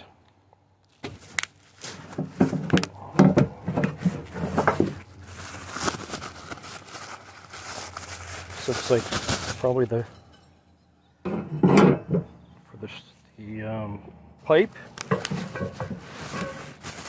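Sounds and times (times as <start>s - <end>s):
bubble wrap crinkling: 0.8s - 2.9s, 4.0s - 10.0s, 15.2s - 17.0s.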